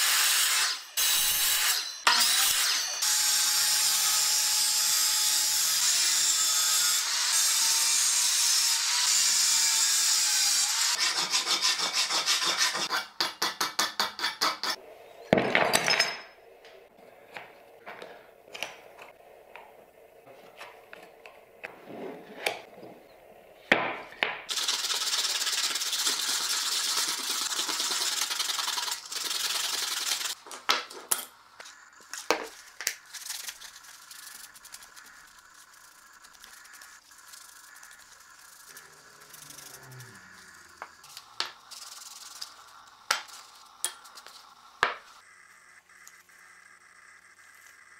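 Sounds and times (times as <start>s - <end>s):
angle grinder on copper sheet: 0.0s - 13.0s, 34.6s - 41.7s
hand sanding rubbing strokes: 10.6s - 13.2s, 24.5s - 30.4s, 32.5s - 44.5s.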